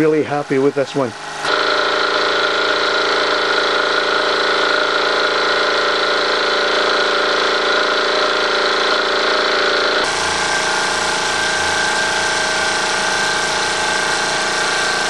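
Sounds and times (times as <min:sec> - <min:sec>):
toy steam engine chuffing: 0:01.5 - 0:10.0.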